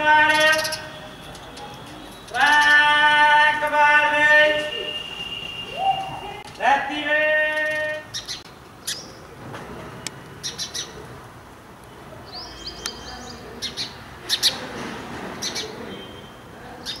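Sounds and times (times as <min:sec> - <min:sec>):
sparrow chirping: 0:00.3 - 0:02.7, 0:07.5 - 0:09.2, 0:10.4 - 0:11.0, 0:12.2 - 0:14.6, 0:15.4 - 0:17.0.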